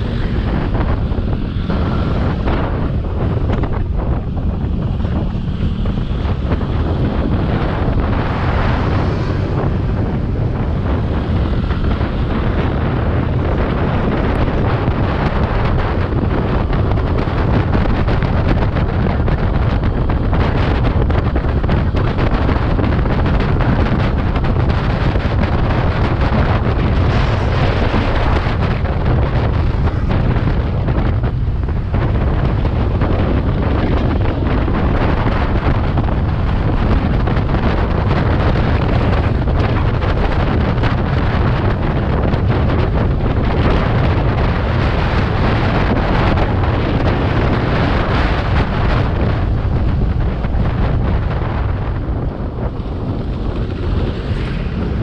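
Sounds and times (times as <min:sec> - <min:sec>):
wind rushing over microphone: 0:00.0 - 0:55.0.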